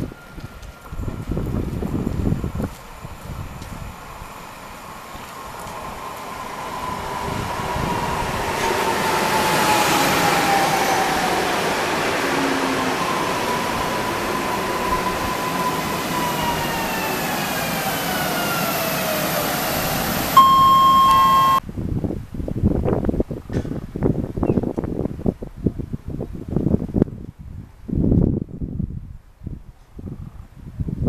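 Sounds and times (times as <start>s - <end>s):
electric train running past: 0.0s - 21.6s
traction motor whine: 12.4s - 21.6s
loud steady tone: 19.0s - 21.6s.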